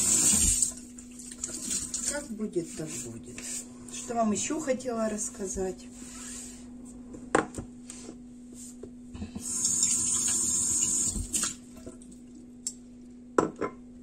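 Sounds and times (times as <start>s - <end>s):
tap water running into sink: 0.0s - 2.1s, 9.4s - 12.0s.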